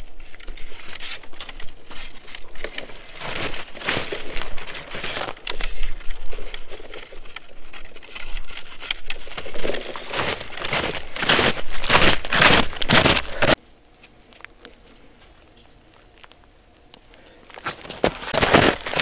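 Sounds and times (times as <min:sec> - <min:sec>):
snowshoes crunching on snow: 0:02.6 - 0:07.7, 0:08.6 - 0:13.6, 0:17.6 - 0:19.0.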